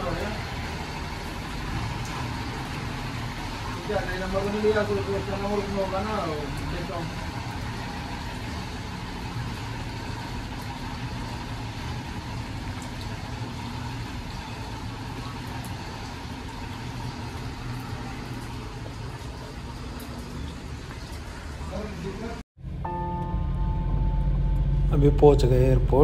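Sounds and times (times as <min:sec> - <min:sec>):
road noise: 0:00.0 - 0:26.0
car engine hum: 0:22.6 - 0:26.0.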